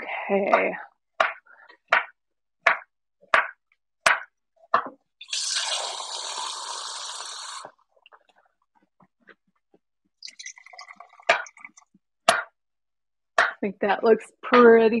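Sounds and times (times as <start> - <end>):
water running from tap: 5.2 - 7.8, 10.2 - 11.8.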